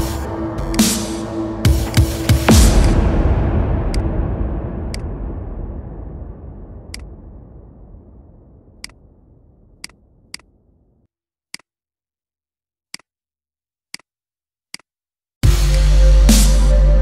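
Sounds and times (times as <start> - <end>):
loud electronic music: 0.0 - 4.0, 15.4 - 17.0.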